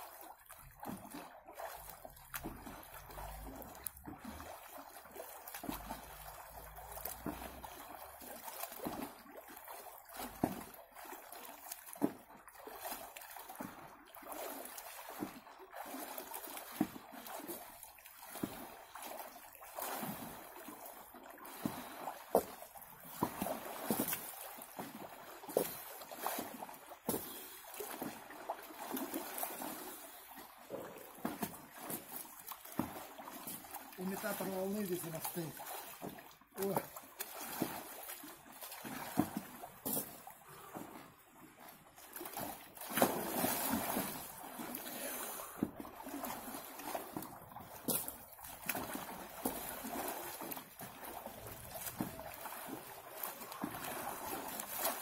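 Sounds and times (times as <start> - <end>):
water splashing from swimming: 0.0 - 55.0.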